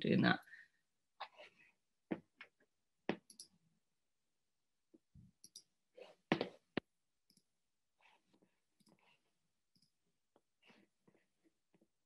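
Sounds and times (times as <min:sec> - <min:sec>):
computer mouse clicks: 0:05.4 - 0:05.7.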